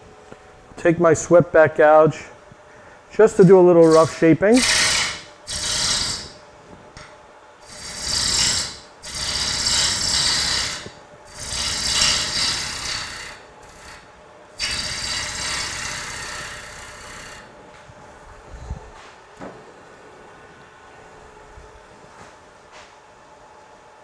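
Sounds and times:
gouge shaving wood on a lathe: 3.8s - 6.3s, 7.6s - 17.5s.

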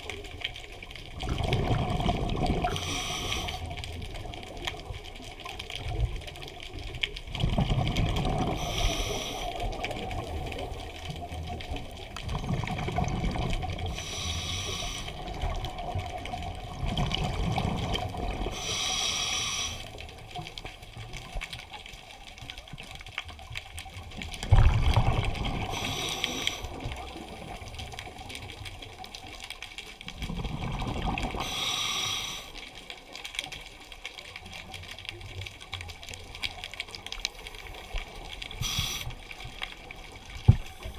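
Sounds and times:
exhaled bubbles rushing: 1.1s - 3.0s, 7.3s - 8.8s, 9.6s - 14.0s, 15.2s - 18.6s, 24.3s - 27.6s, 30.1s - 31.5s
scuba regulator breathing: 2.6s - 3.9s, 8.4s - 9.9s, 13.8s - 15.4s, 18.4s - 20.1s, 25.6s - 27.3s, 31.3s - 32.7s, 38.5s - 39.4s.

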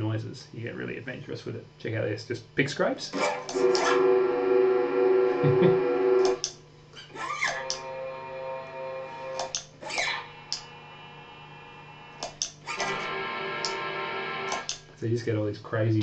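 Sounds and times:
sustained guitar drone: 3.2s - 6.5s, 7.4s - 9.6s, 12.8s - 14.7s.

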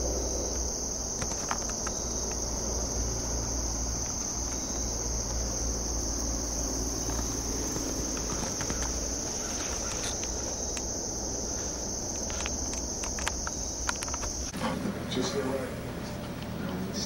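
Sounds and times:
crickets and insects chirping: 0.0s - 17.0s.

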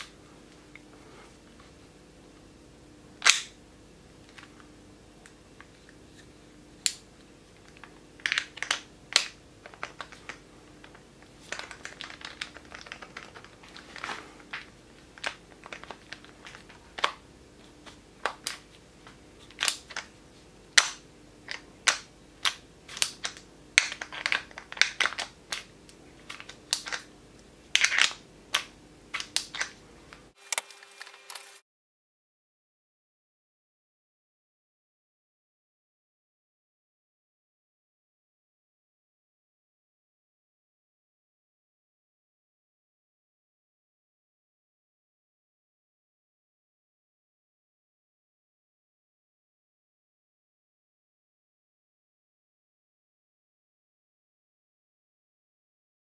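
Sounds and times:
faint steady hum: 0.0s - 30.4s.

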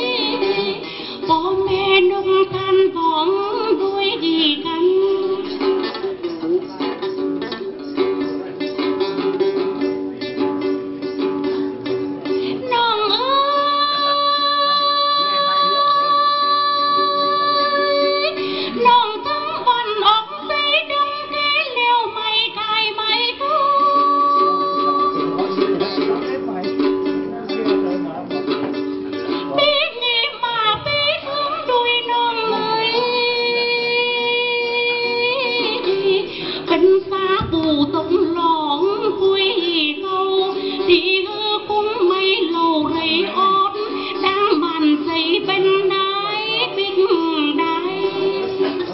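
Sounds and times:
woman singing in a high voice: 0.0s - 6.6s, 12.5s - 25.6s, 29.5s - 48.9s
instrumental accompaniment: 0.0s - 48.9s
plucked lute: 0.0s - 48.9s.

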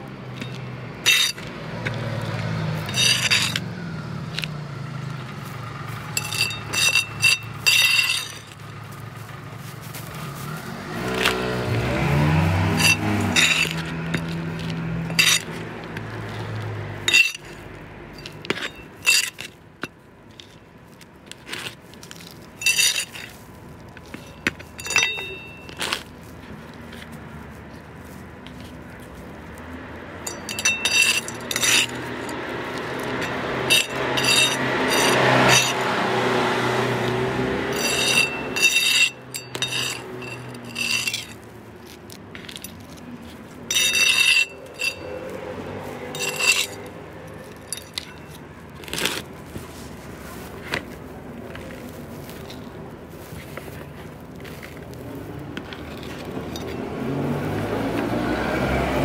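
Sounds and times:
metal trowel clinking: 0.2s - 3.7s, 6.0s - 8.7s, 11.0s - 20.6s, 21.3s - 27.1s, 30.2s - 36.1s, 37.6s - 49.6s, 55.6s - 57.0s
soil scraping and pouring: 0.3s - 3.7s, 5.1s - 57.4s.

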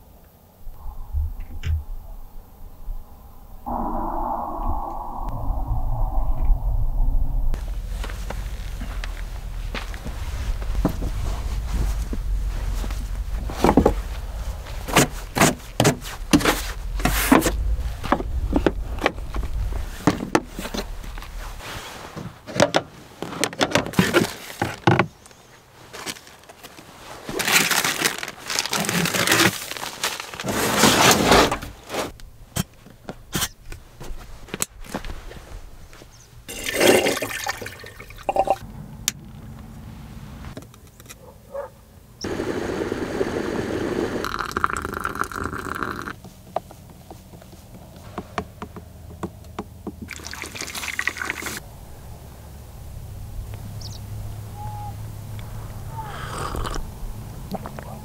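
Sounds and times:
plastic bag rustling: 26.0s - 31.0s
kettle hissing steam: 42.2s - 46.1s.

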